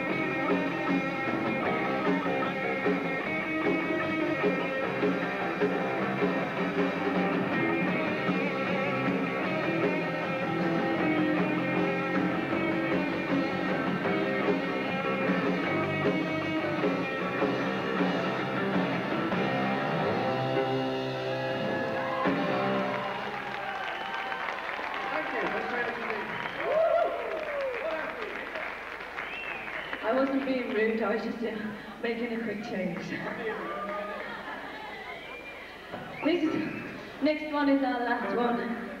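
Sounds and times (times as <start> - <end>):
electric guitar: 0.0 - 24.6
live rock band playing: 0.0 - 26.4
drums: 0.0 - 39.0.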